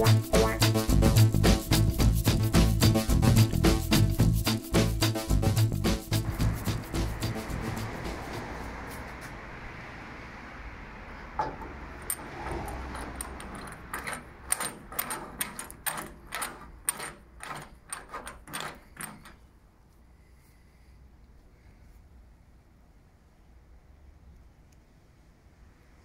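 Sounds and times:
metal cap clicking: 11.4 - 19.4.

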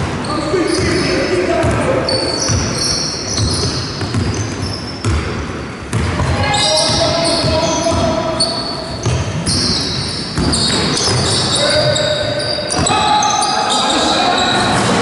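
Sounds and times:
shoes squeaking on court: 0.0 - 15.0
basketball bouncing: 1.6 - 8.2, 8.9 - 11.6.

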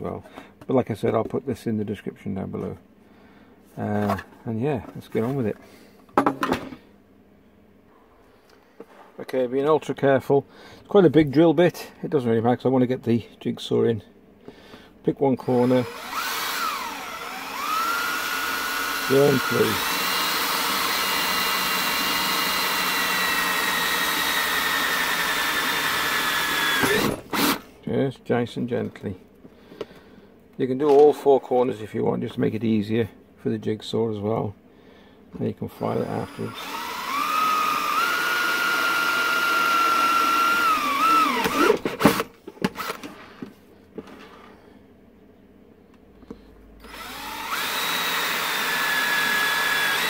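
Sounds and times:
power drill whining through plastic: 15.4 - 27.6, 35.8 - 43.2, 46.8 - 50.0.

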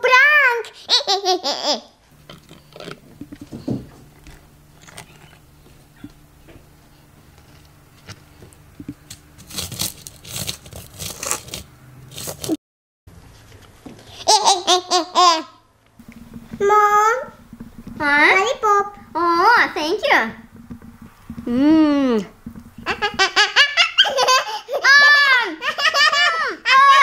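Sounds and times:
plastic bowl clicks and scrapes: 8.9 - 12.6
low steady hum: 15.4 - 24.8.

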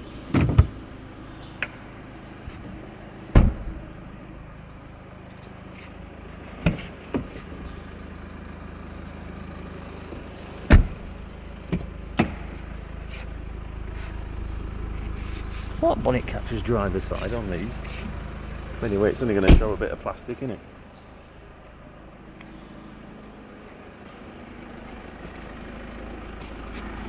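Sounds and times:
diesel engine idling: 0.0 - 27.0
car doors and boot thumping: 0.3 - 0.8, 2.6 - 3.9, 6.6 - 7.6, 10.7 - 12.6, 19.5 - 19.9.

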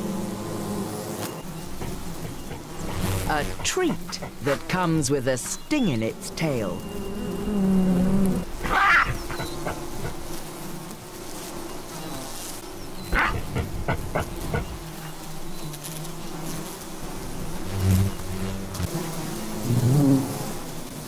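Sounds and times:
bees buzzing: 0.0 - 21.0.

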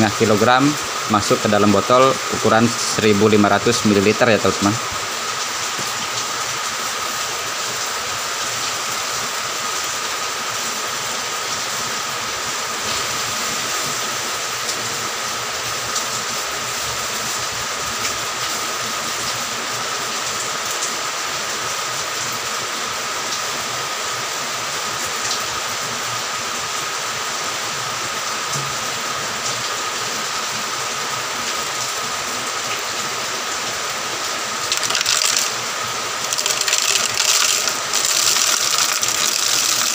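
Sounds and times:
granules rattling into plastic bottle: 34.7 - 35.6, 36.2 - 39.9.

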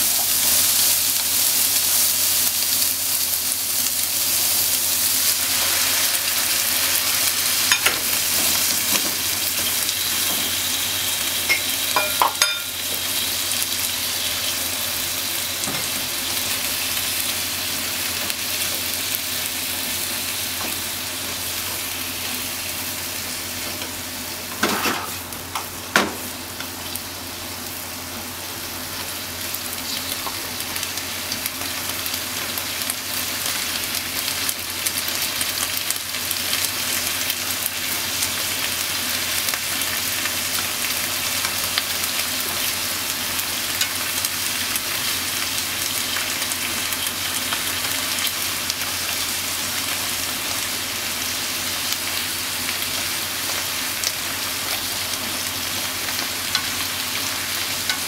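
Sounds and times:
meat sizzling in a frying pan: 0.0 - 58.0.

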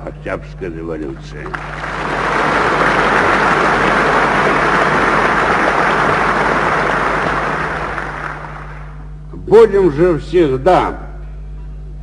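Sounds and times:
audience applauding: 1.1 - 9.1.

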